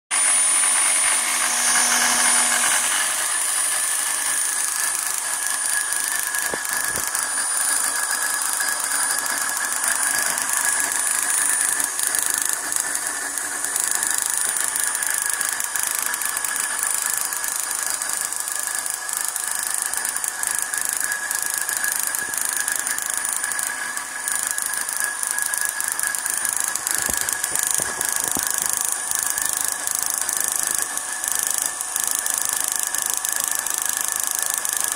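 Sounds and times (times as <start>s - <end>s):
electric drill whining: 0.1s - 34.9s
high-voltage sparks crackling: 4.4s - 9.1s, 24.4s - 34.9s.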